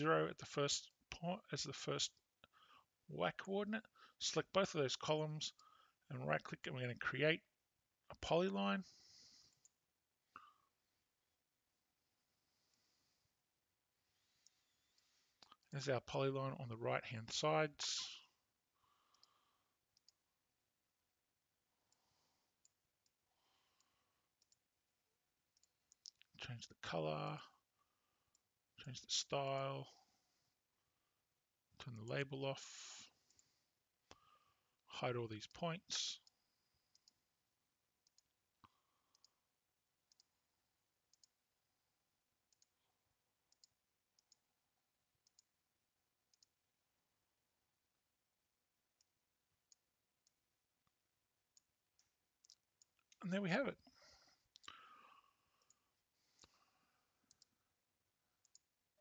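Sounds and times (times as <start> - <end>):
computer mouse clicks: 36.2 - 37.2, 38.0 - 39.4, 40.1 - 40.3, 41.1 - 41.4, 43.5 - 44.4, 45.2 - 45.5, 46.3 - 46.6, 51.5 - 53.2, 57.3 - 57.5, 58.4 - 58.7
faint computer mouse clicks: 45.2 - 45.5, 57.3 - 57.5.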